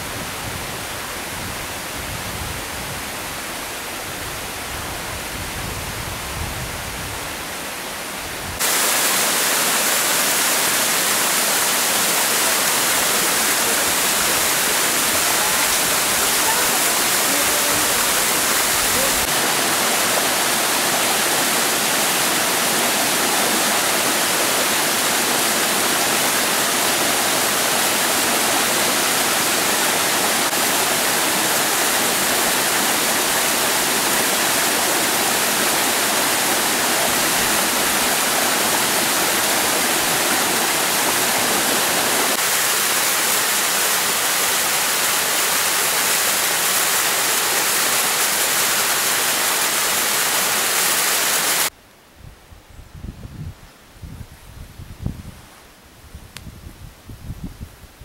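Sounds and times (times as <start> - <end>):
waterfall crashing into a pool: 8.6 - 51.7.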